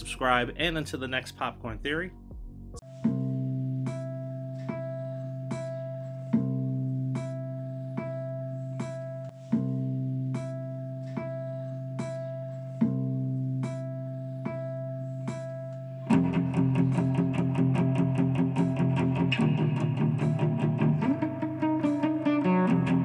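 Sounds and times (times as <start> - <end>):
plucked guitar figure: 16.1 - 23.0.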